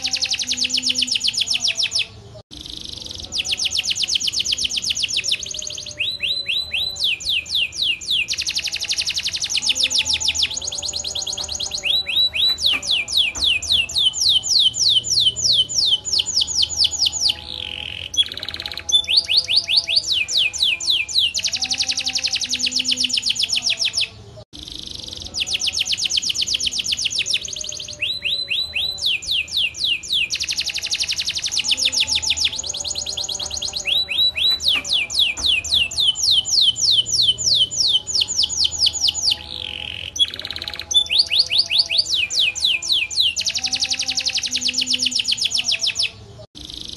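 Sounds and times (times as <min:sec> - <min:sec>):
canary singing trills: 0:00.0 - 0:46.9.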